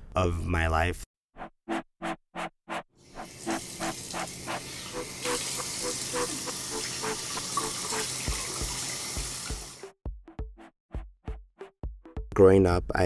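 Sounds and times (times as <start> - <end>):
water running: 3.1 - 9.9
bass drum beat: 8.3 - 12.4.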